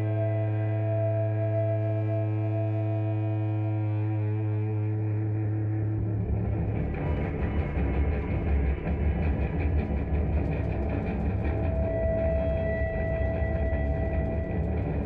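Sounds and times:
noise rock guitar bass and drums: 5.4 - 15.0.

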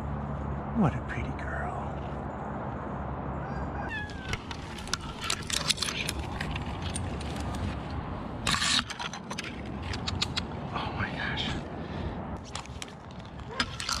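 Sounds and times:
climbing gear clicks: 4.1 - 10.6, 12.4 - 14.0
branches scraping and rustling: 4.2 - 10.2.

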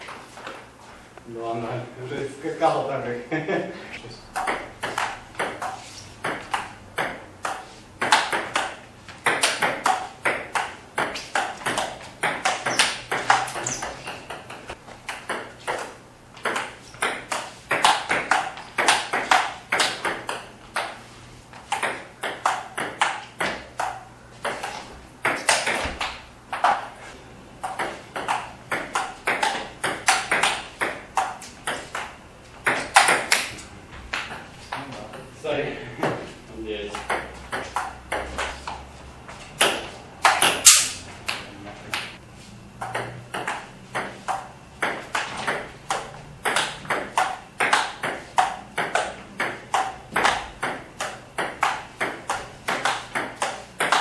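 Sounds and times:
table tennis ball clicking: 4.3 - 21.0, 21.7 - 27.0, 27.6 - 33.5, 42.8 - 54.0.

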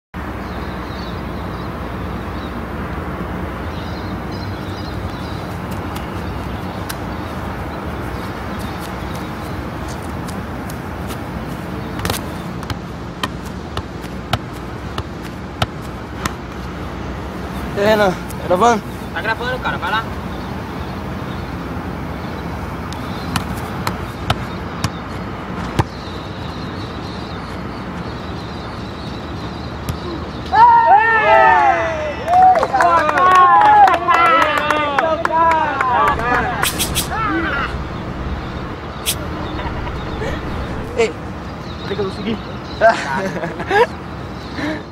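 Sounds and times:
steady background noise: 0.2 - 44.9
football kicked by foot: 12.0 - 16.5, 25.6 - 26.0
low rumble: 36.0 - 41.8
faint bird chirps: 36.4 - 42.8.

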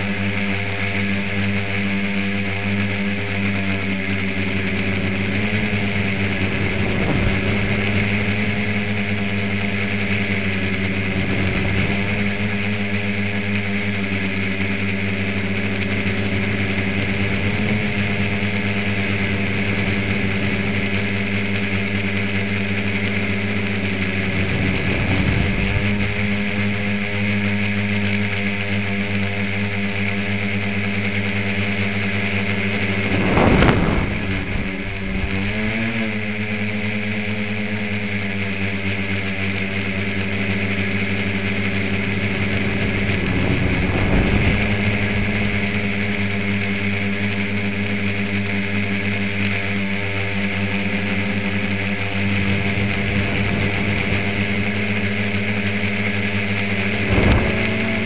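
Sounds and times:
drone motors and propellers buzzing: 0.0 - 58.0
rushes of noise: 4.3 - 12.7, 15.8 - 27.6, 31.6 - 37.4, 40.5 - 47.1, 50.6 - 58.0.

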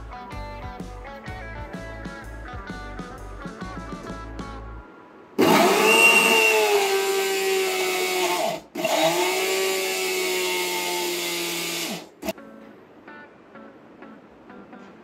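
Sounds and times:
mixer grinder motor whining: 5.4 - 12.3.

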